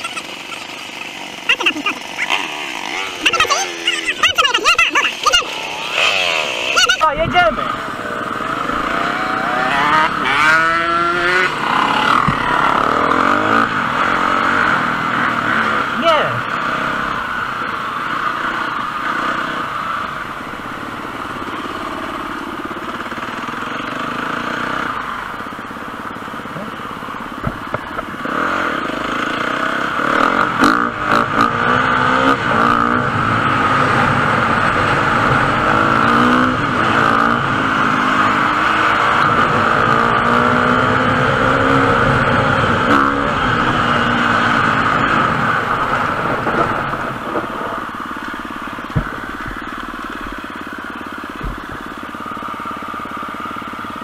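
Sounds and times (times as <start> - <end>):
motorcycle engine revving: 0.0 - 54.0
sharp knocks: 27.4 - 28.1, 48.8 - 50.4, 51.3 - 52.0.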